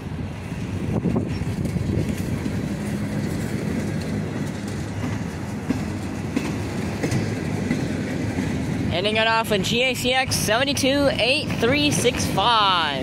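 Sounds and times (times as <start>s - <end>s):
freight train wheels rumbling: 0.0s - 13.0s
clicks over rail joints: 1.4s - 8.5s.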